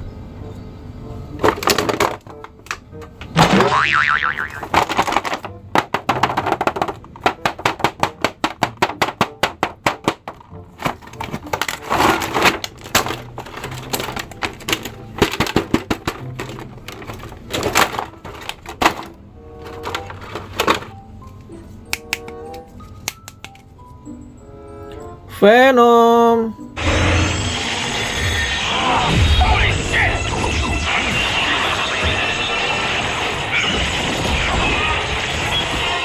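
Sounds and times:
plastic packaging crackling: 0:10.0 - 0:20.9.

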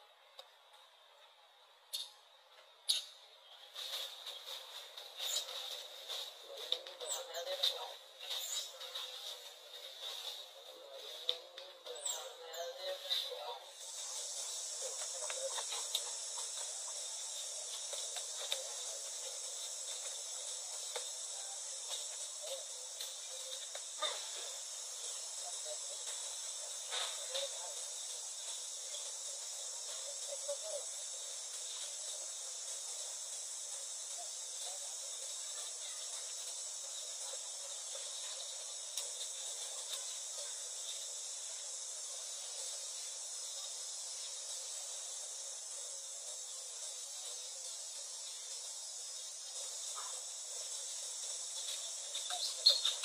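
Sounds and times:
insect chorus drone: 0:00.0 - 0:53.0
faint clicks: 0:38.8 - 0:40.2.

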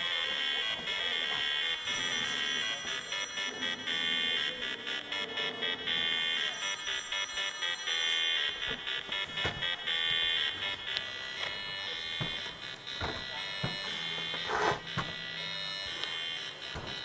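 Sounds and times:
buzzy electronic tones: 0:00.0 - 0:17.0.

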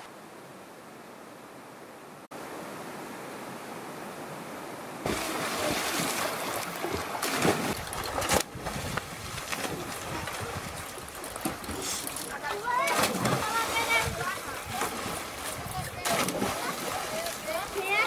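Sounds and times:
flowing river water: 0:00.0 - 0:18.0
people splashing in water: 0:05.0 - 0:18.0.

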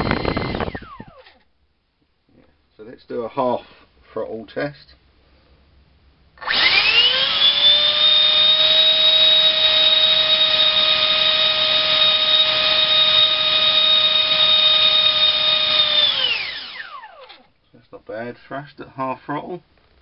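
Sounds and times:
electric fan high whine: 0:00.0 - 0:01.2, 0:06.4 - 0:17.3.

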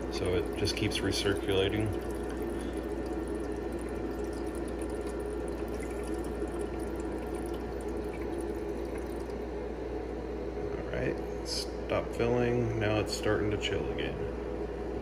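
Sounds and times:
water running and splashing: 0:00.0 - 0:09.5
low machine hum: 0:00.0 - 0:15.0.

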